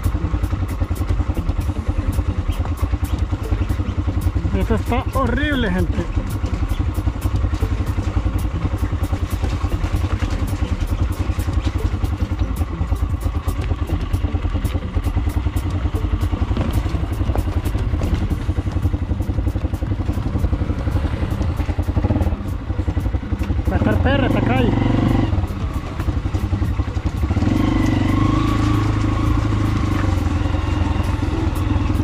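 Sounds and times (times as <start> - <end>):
small motorcycle engine: 0.0 - 32.0
knocks and rattles from bumps: 6.1 - 23.7.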